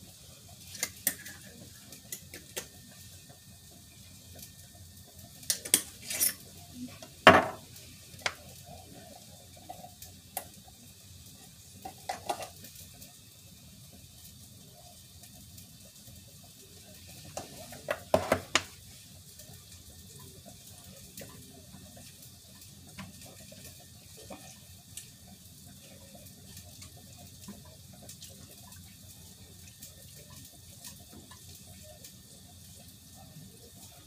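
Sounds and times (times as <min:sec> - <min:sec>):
tap running into sink: 0:07.3 - 0:07.6, 0:17.9 - 0:18.7.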